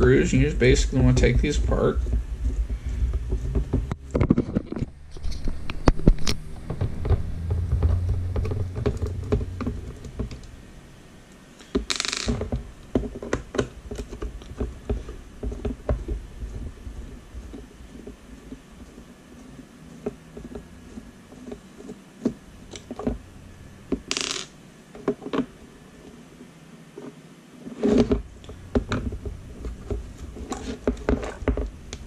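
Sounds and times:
scratchy rustle: 0:00.0 - 0:10.2, 0:26.9 - 0:32.0.

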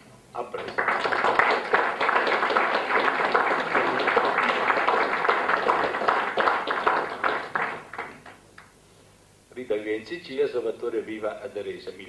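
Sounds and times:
people applauding: 0:00.4 - 0:08.4.

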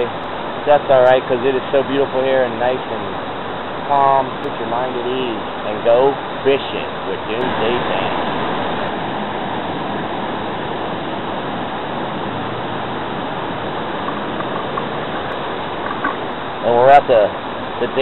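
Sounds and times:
water rushing over rocks: 0:00.0 - 0:18.0.

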